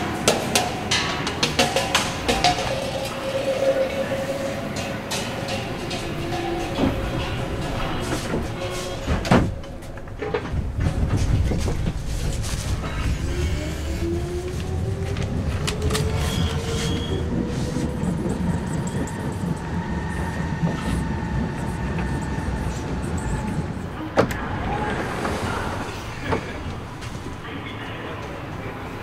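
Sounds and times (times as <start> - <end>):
subway train rumbling: 0.0 - 29.0.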